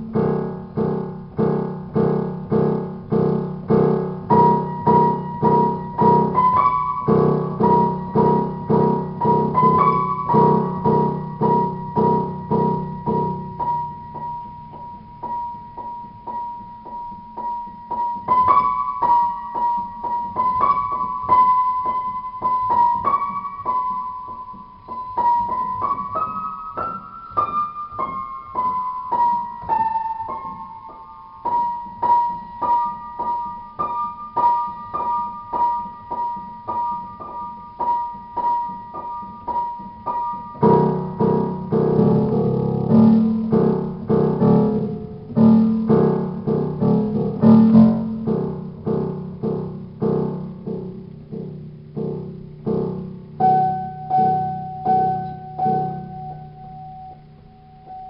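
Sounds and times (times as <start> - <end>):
solo piano repeated notes: 0.0 - 58.0.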